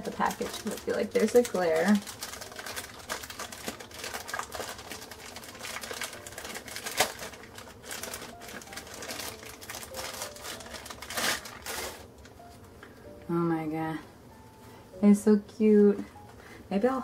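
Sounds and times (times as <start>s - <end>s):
plastic packaging crinkling: 0.0s - 12.6s.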